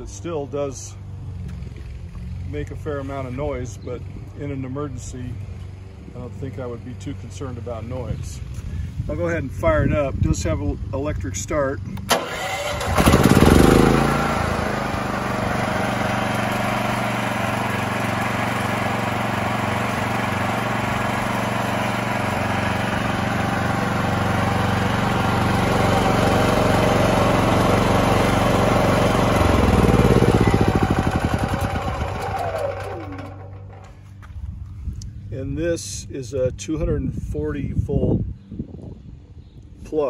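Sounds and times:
generator engine running: 11.8 - 34.5.

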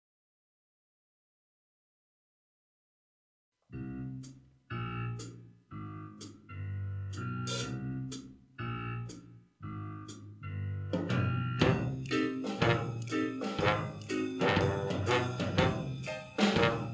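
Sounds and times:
drum kit and cymbal strokes: 7.5 - 8.2, 11.6 - 16.9
swing band playing jazz: 11.0 - 16.9.

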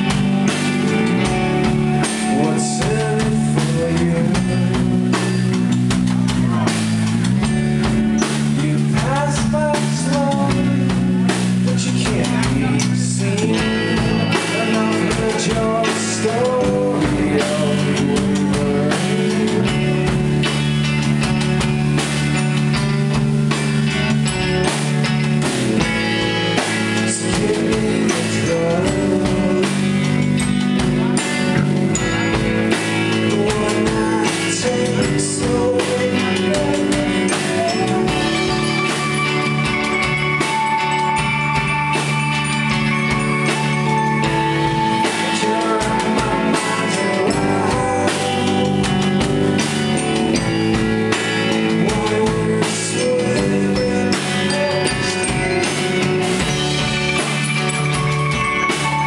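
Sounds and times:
drum kit: 0.0 - 59.0
electric bass: 0.0 - 59.0
electric guitars: 0.0 - 59.0.

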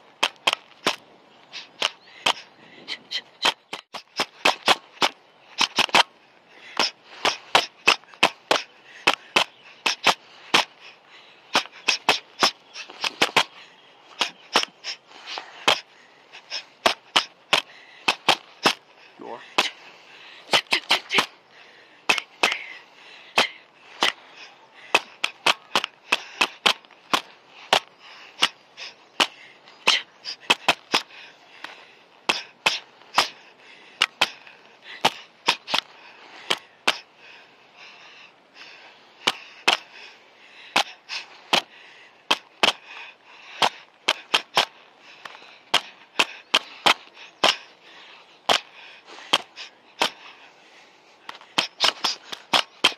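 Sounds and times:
boxing gloves slapping: 3.4 - 6.1, 24.9 - 28.6, 48.5 - 48.7, 51.3 - 52.9.

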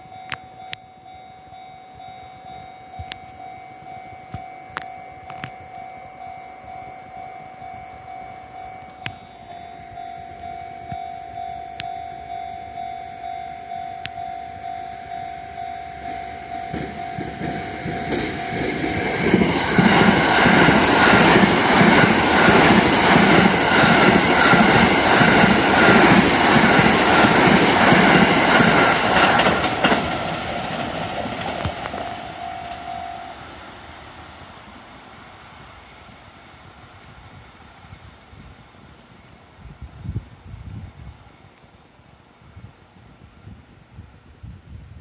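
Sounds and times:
level crossing warning bell: 0.0 - 34.3
train wheels clattering over rail joints: 16.7 - 32.8.

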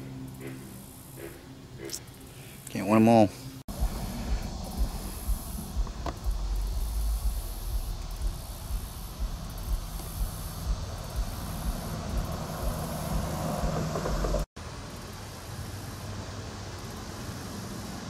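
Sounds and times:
low engine drone: 0.0 - 2.6, 3.4 - 14.5
wind buffeting microphone: 3.7 - 14.5.

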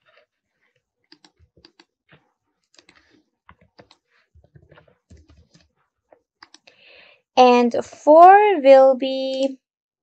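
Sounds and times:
keyboard typing: 1.0 - 6.7.

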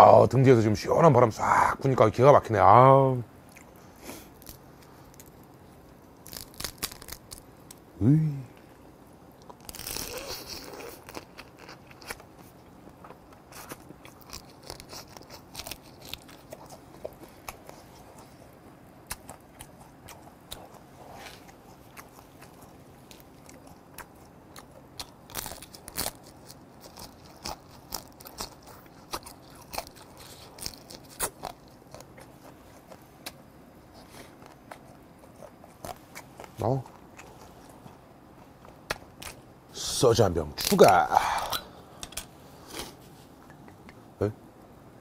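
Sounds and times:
crab shell crunching: 3.6 - 7.9, 9.4 - 39.6.

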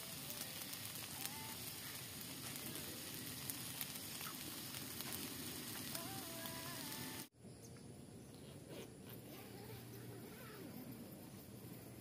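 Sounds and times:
food sizzling in a wok: 0.0 - 7.3
oil popping and crackling: 0.0 - 7.3.

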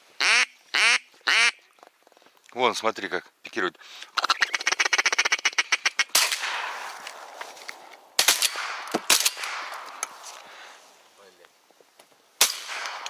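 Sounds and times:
shotgun shots with echo: 6.1 - 7.0, 8.2 - 10.0, 12.4 - 13.0.

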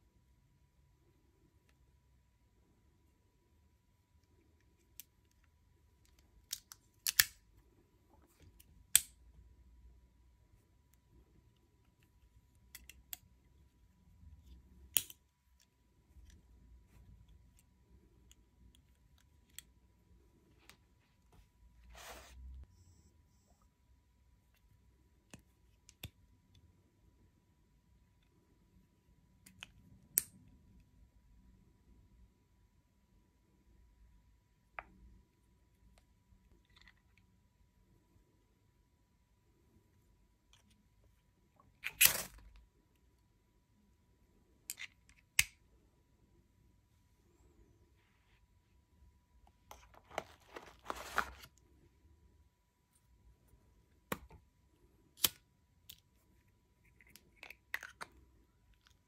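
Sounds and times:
multitool metal clicks and snaps: 6.4 - 7.4.

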